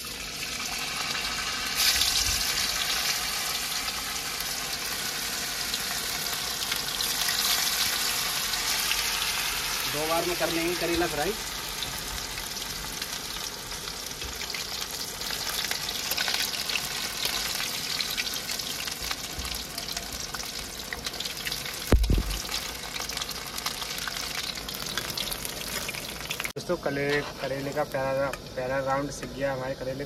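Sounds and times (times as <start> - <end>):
vegetable slices frying in a pan: 0.0 - 30.0
thump: 21.9 - 22.4.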